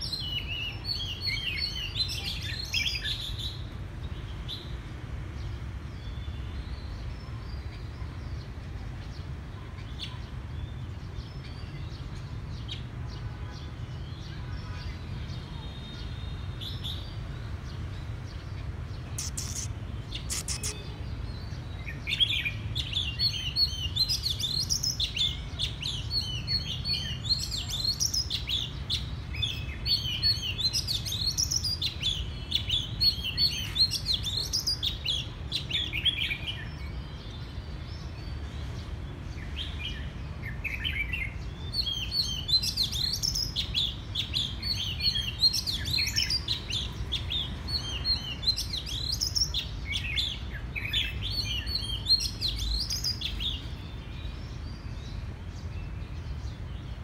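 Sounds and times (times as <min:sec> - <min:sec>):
bird singing whistles and chirps: 0:19.1 - 0:20.9.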